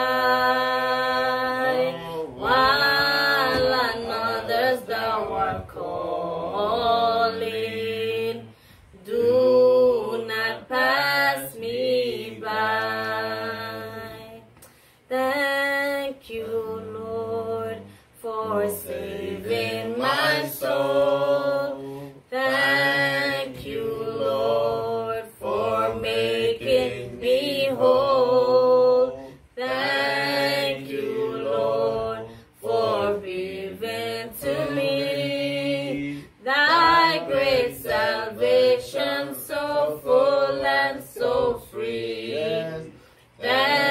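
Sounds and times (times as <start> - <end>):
woman singing a hymn: 0.0 - 43.9.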